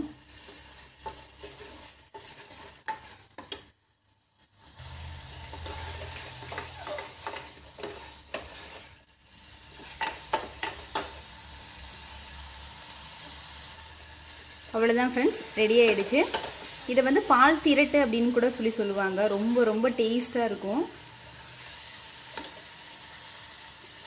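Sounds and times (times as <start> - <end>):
steady sizzle: 0.0 - 24.0
spatula scraping a pan: 0.2 - 3.8, 4.4 - 11.3.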